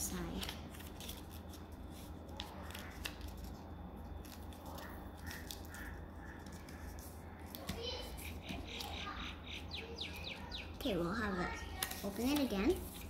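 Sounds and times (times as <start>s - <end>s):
steady low hum: 0.0s - 13.0s
paper folding and crinkling: 0.1s - 8.9s, 11.6s - 13.0s.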